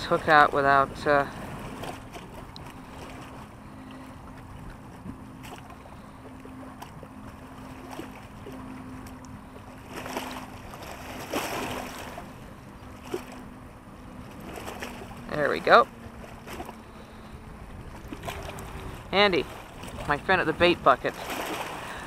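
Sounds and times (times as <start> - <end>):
faint steady drone: 0.0 - 22.0
small waves lapping at wall: 0.0 - 22.0
wind on microphone: 14.2 - 22.0.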